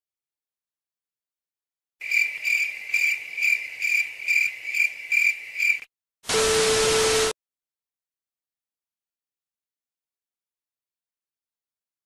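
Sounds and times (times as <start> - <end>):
crickets chirping: 2.0 - 5.9.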